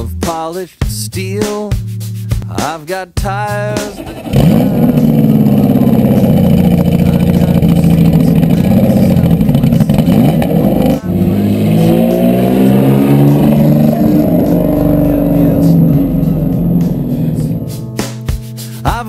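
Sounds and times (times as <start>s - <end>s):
racing car engine accelerating: 3.9s - 18.3s.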